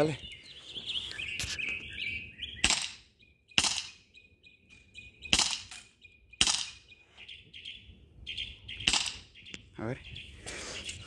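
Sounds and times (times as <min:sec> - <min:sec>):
airsoft pistol shots: 0:02.6 - 0:03.0, 0:03.6 - 0:04.0, 0:05.3 - 0:06.8, 0:08.8 - 0:09.3.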